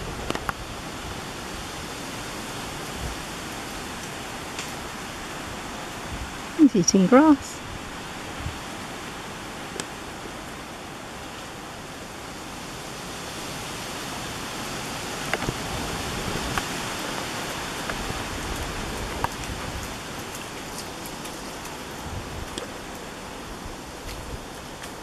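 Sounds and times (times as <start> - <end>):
running water: 0.0 - 25.0
dog paws in wet mud: 16.3 - 25.0.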